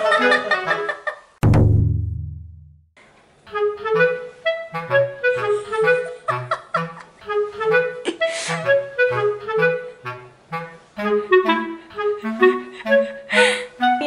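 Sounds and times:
short low bass notes: 0:01.4 - 0:02.8
bouncy clarinet music: 0:03.5 - 0:14.0.

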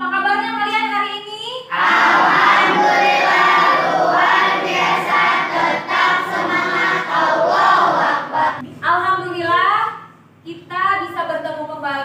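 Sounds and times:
children chanting in unison: 0:01.7 - 0:08.6.

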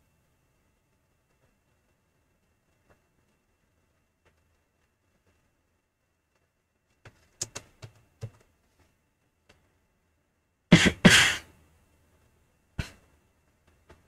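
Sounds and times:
computer keyboard clicks: 0:07.1 - 0:08.5
man coughing: 0:10.7 - 0:11.5.

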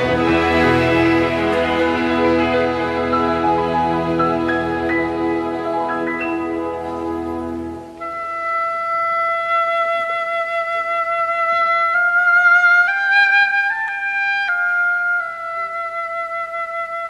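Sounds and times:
low chord: 0:00.0 - 0:08.1
slow melody of long notes: 0:00.0 - 0:17.0.

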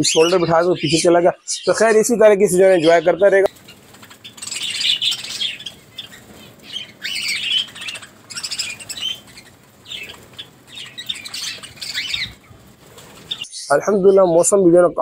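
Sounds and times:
birds chirping and chattering: 0:00.0 - 0:15.0
wing flapping: 0:02.8 - 0:13.5.

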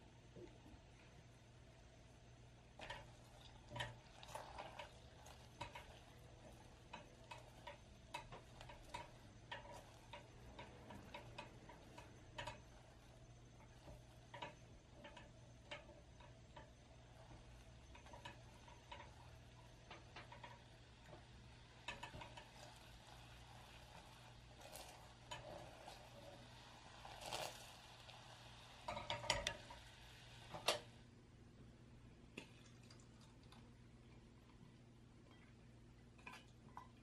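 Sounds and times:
sugar syrup bubbling: 0:02.5 - 0:30.9
spatula stirring syrup: 0:02.8 - 0:30.6.

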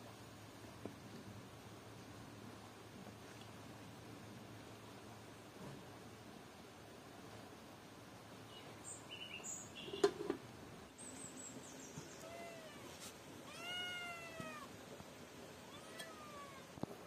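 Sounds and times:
kitten meowing: 0:12.2 - 0:14.7, 0:15.6 - 0:16.7.

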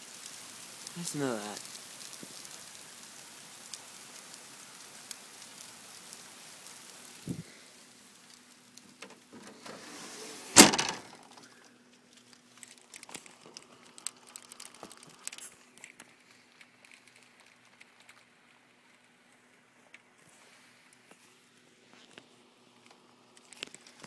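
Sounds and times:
light taps of raindrops: 0:00.0 - 0:09.9, 0:11.0 - 0:21.3, 0:21.9 - 0:24.0
heavy rain hissing: 0:00.0 - 0:11.9
thump: 0:09.0 - 0:11.1
loud sharp bang: 0:10.4 - 0:11.2.

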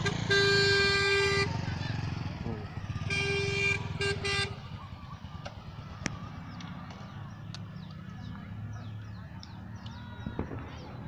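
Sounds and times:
vehicle horn toots: 0:00.0 - 0:01.7, 0:03.0 - 0:04.7.

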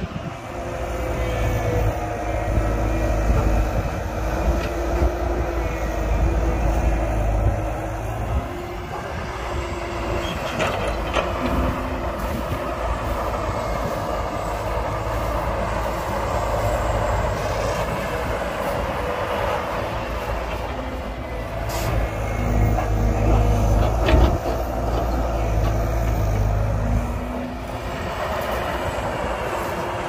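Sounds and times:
excavator diesel engine: 0:00.0 - 0:30.0.

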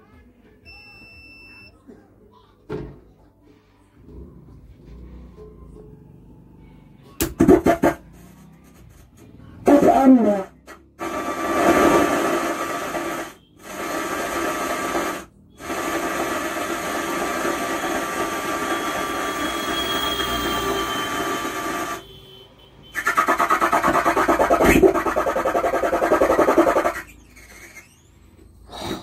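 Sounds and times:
amplifier harsh rasping noise: 0:09.6 - 0:22.2, 0:22.9 - 0:28.1.

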